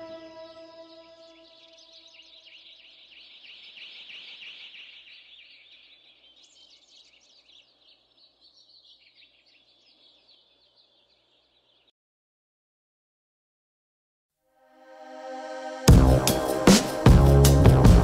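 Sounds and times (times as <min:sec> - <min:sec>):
music track held notes: 0:00.0 - 0:01.8, 0:14.7 - 0:18.0
high rapid bird chirping: 0:00.0 - 0:11.9.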